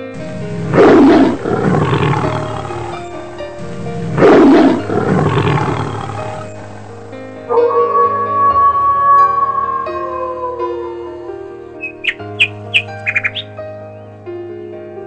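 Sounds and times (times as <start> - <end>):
background music: 0.0 - 15.0
lion roaring: 0.3 - 11.4.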